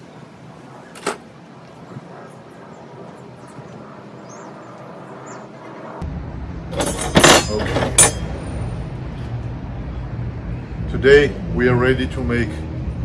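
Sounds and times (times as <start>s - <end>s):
low steady rumble: 0.0s - 13.0s
metal skewers clinking: 6.8s - 8.3s.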